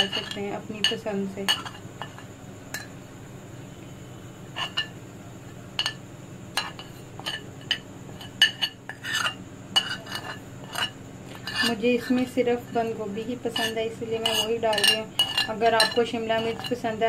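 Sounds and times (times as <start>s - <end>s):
metal spoon clinking on plate: 6.6s - 11.7s, 13.6s - 16.8s.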